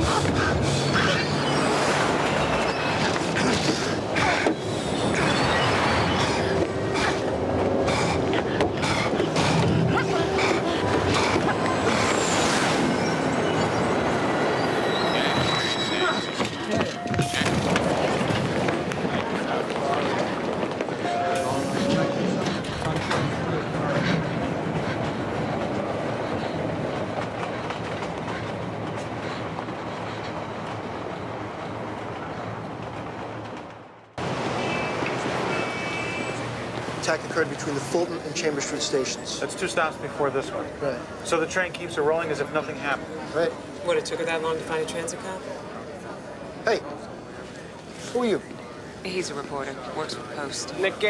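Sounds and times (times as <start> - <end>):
wheels squealing: 0.0 - 33.5
subway train running: 0.0 - 51.0.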